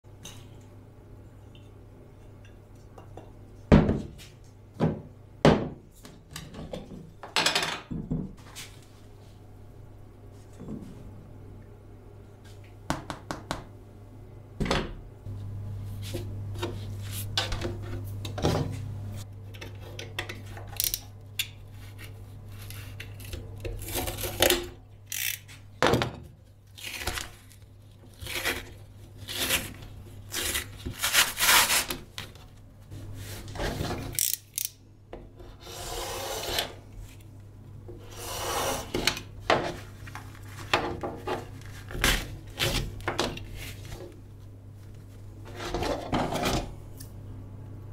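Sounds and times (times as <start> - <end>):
steady low hum: 8.2 - 47.9
rubbing and scraping linoleum: 28.2 - 32.1, 35.4 - 36.8, 38.0 - 44.1.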